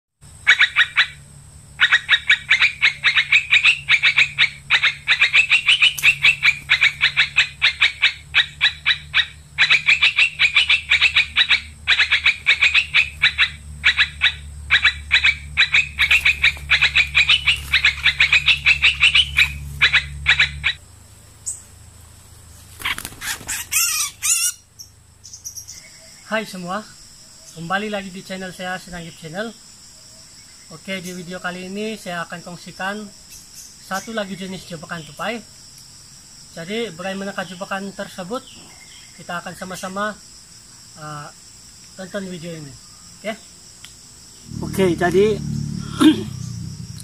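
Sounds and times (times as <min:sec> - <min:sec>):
animal chattering call: 0:00.4 - 0:01.2, 0:01.8 - 0:20.8, 0:22.8 - 0:24.7, 0:44.4 - 0:47.0
low steady hum: 0:44.3 - 0:47.0.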